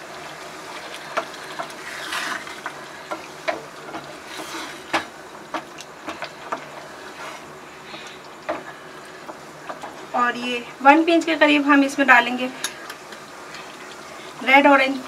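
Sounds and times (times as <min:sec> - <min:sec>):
gravy simmering sizzle: 0:00.0 - 0:15.0
spatula scraping pan: 0:01.0 - 0:10.0.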